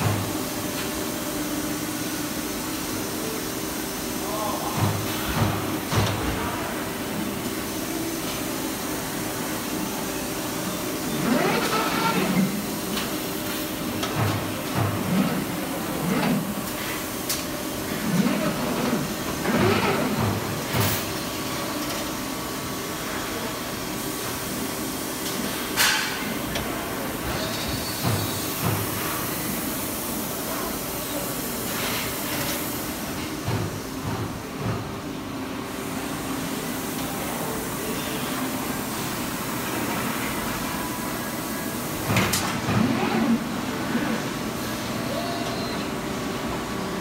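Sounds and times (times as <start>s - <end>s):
machinery humming: 0.0s - 21.0s.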